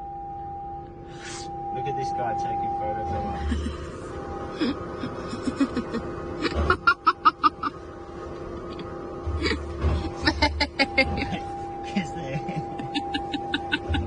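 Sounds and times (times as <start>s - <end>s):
steady tones: 0.0s - 14.0s
person laughing: 3.4s - 3.9s, 4.6s - 7.8s, 9.4s - 9.6s, 10.2s - 11.4s, 12.3s - 14.0s.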